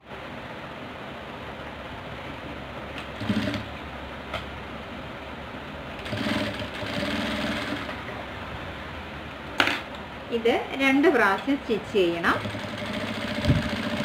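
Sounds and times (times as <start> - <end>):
low steady hum: 0.0 - 14.0
sewing machine sewing: 3.0 - 3.7, 6.0 - 8.0, 12.3 - 14.0.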